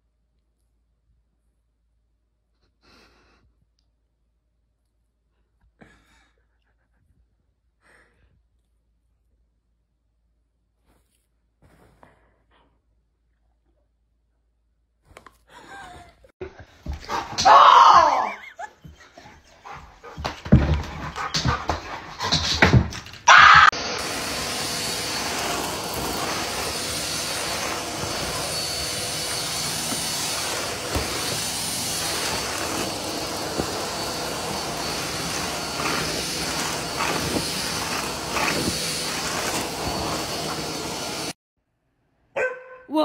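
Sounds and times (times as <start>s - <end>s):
stick vacuum cleaner running: 16.8s - 41.4s
dog yipping: 42.4s - 42.9s.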